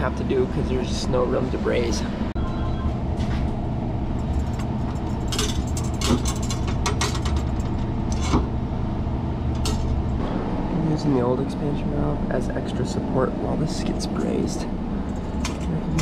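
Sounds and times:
low machine hum: 0.0s - 16.0s.

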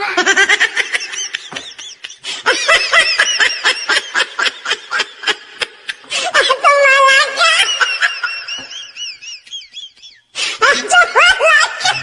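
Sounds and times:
high-pitched laughter: 0.0s - 12.0s.

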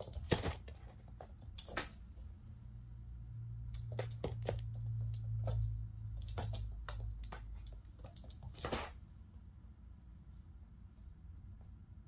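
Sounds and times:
kitten paws running on floor: 0.0s - 2.4s, 3.7s - 9.0s
steady low hum: 0.0s - 12.0s
paws scrabbling: 3.8s - 9.0s.

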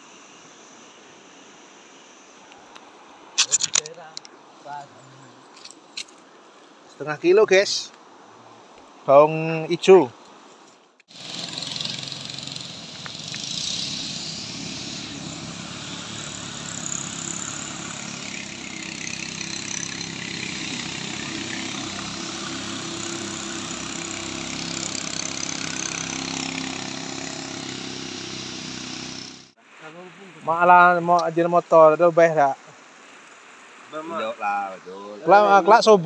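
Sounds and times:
boat engine running: 11.1s - 29.5s
river water rushing: 11.1s - 31.0s, 31.7s - 35.6s.

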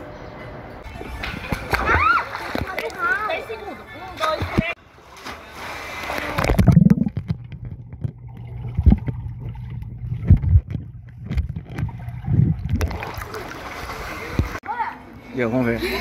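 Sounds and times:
pool water splashing: 0.8s - 15.0s
muffled underwater rumble: 6.4s - 13.1s.

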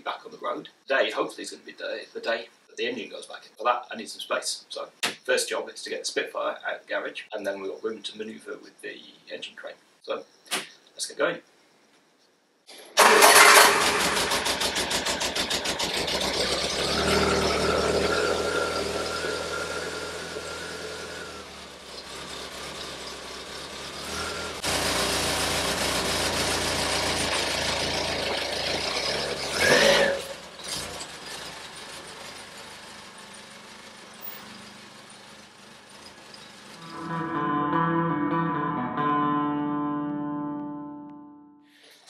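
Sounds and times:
car engine starting and running: 13.0s - 36.8s.

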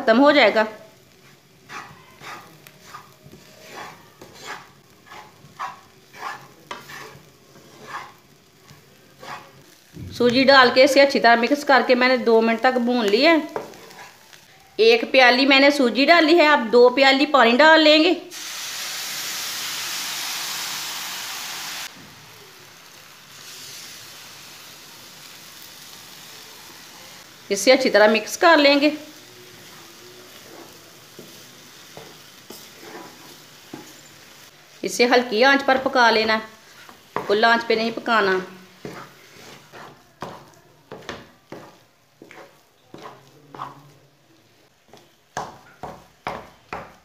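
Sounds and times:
frying sizzle: 0.0s - 17.6s, 18.2s - 47.0s
wooden spatula scraping frying pan: 1.2s - 9.8s, 13.4s - 14.3s, 29.5s - 34.1s, 36.1s - 43.9s.

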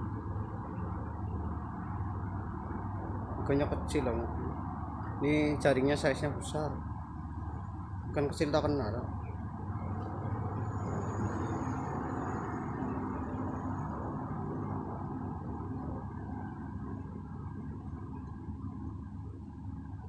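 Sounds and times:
road traffic hum: 0.0s - 20.0s.

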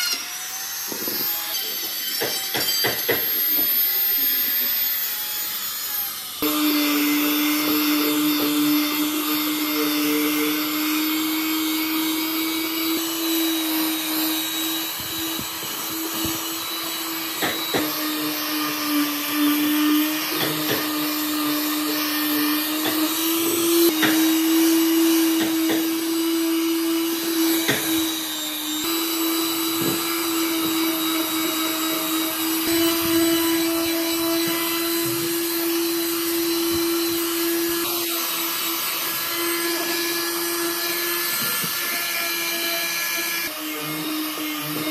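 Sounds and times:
electric sander on wood: 0.0s - 44.9s
sander knocks: 27.5s - 31.6s.

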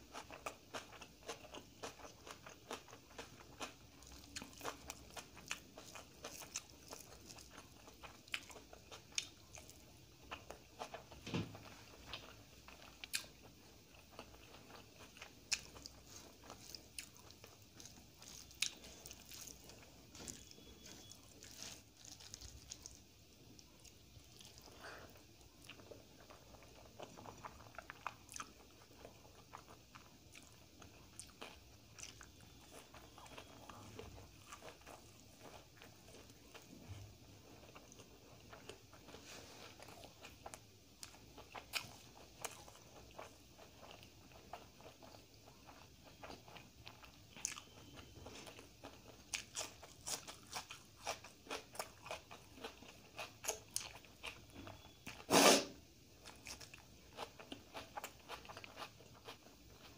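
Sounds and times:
person chewing food: 0.0s - 59.9s.

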